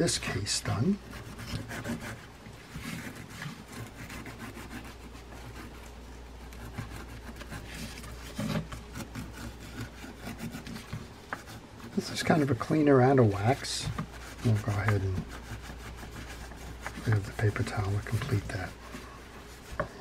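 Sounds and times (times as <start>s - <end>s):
scrub pad scrubbing metal: 0.0s - 20.0s.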